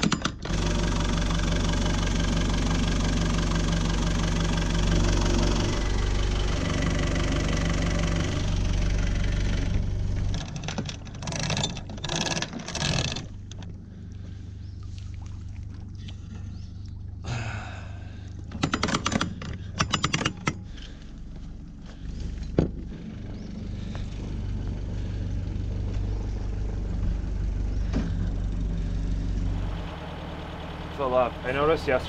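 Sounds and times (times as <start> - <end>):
diesel engine idling: 0.5 - 10.4, 20.6 - 32.0
anchor chain clanking: 10.2 - 13.8, 18.5 - 20.7.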